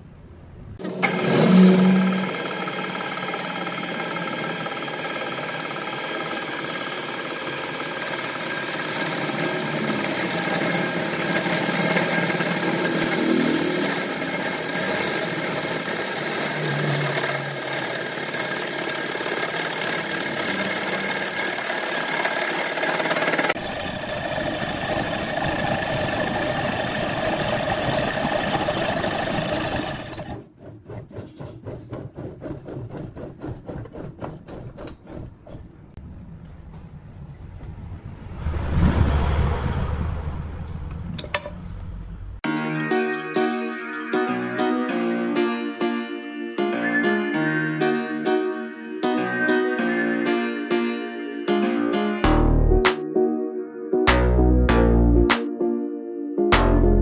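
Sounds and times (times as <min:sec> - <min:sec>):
lathe cutting wood whine: 0:00.8 - 0:30.5
pulsing rattle: 0:01.5 - 0:35.6.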